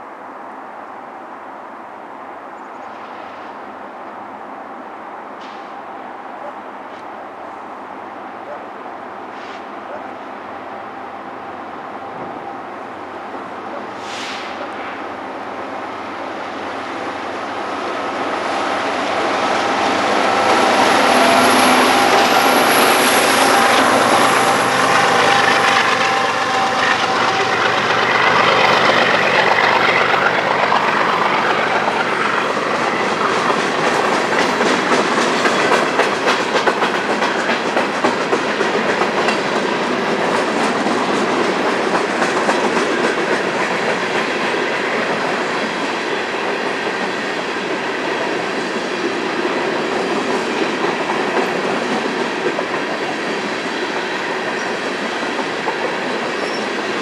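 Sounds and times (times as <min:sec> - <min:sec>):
diesel locomotives passing: 0:00.0 - 0:57.0
train wheels clickety-clack: 0:18.4 - 0:57.0.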